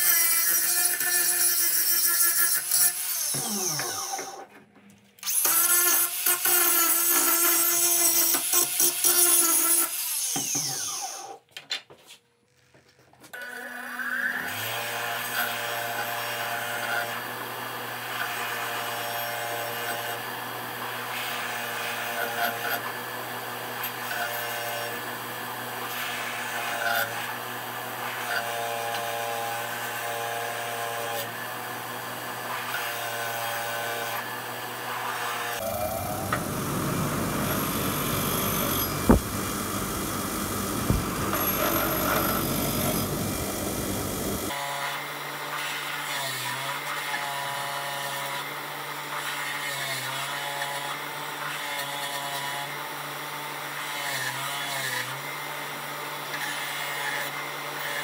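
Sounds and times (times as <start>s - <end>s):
bench grinder humming: 14.6s - 45.0s
angle grinder grinding steel: 32.4s - 44.6s
steel grinding on grinder wheel: 35.0s - 44.6s.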